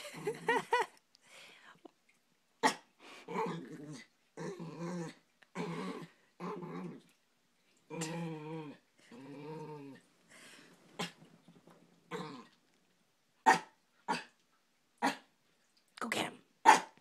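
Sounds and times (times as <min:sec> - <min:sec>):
dog growling: 0:02.6 - 0:07.2, 0:07.9 - 0:11.2, 0:12.0 - 0:12.6
dog barking: 0:13.4 - 0:14.3, 0:16.6 - 0:17.0.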